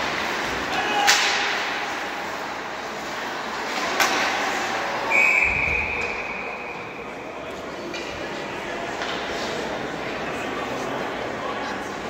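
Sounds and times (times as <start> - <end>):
puck or stick crack: 0.0 - 2.5, 3.6 - 4.8
referee's whistle blast: 5.1 - 6.8.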